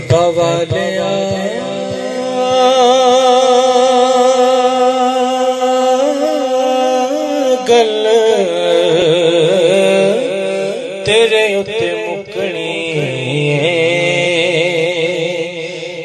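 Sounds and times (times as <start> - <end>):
man singing into microphone: 0.0 - 16.0.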